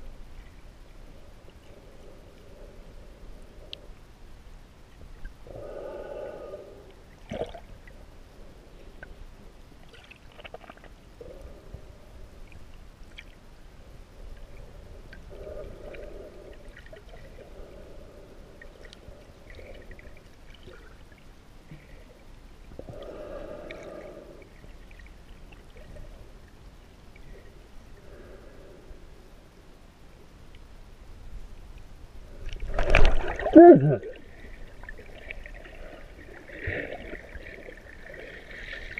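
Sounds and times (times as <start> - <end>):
faint clicks: 3.6 - 4.1, 18.7 - 19.2
water sloshing and gurgling: 6.7 - 8.2, 9.8 - 13.5, 14.1 - 28.2, 32.3 - 38.9.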